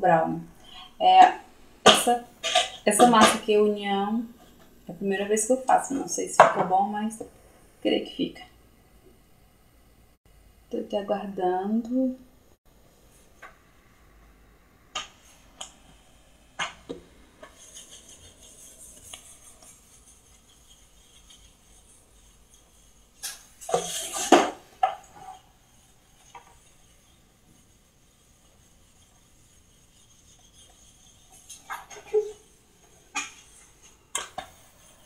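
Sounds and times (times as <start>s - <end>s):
objects clattering on countertop: 1.9s - 3.4s, 23.2s - 25.4s.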